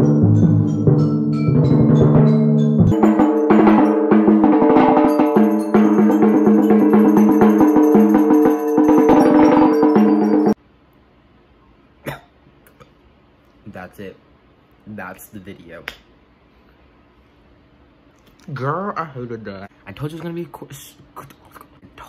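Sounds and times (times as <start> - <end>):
mallet drum strokes: 0.0 - 10.6
ringing pitched mallet notes: 0.0 - 10.6.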